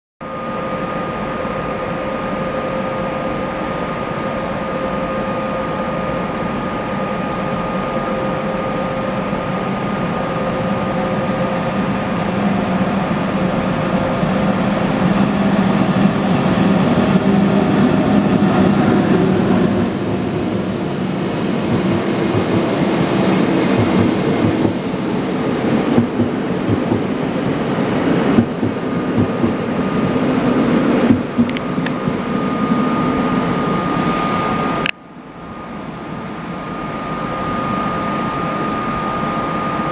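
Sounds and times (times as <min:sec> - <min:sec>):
train rumbling: 0:01.0 - 0:34.9
high brake squeals: 0:24.0 - 0:25.6.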